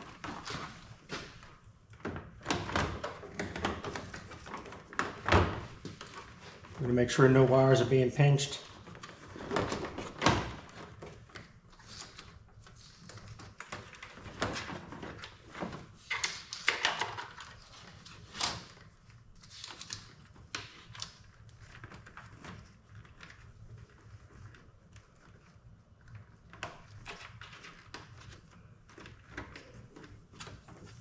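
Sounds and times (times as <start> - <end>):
plastic parts clicking and knocking: 13.6 - 17.6.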